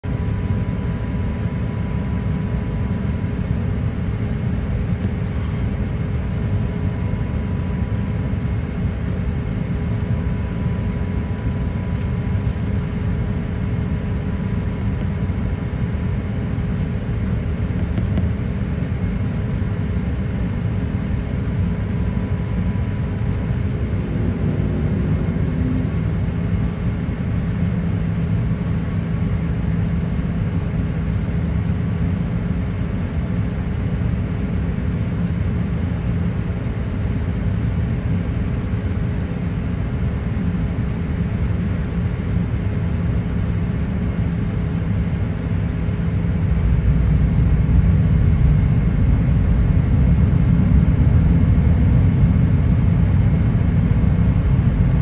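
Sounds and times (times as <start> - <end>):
aircraft cabin rumble: 0.0 - 55.0
low hum: 21.2 - 29.9, 44.9 - 55.0.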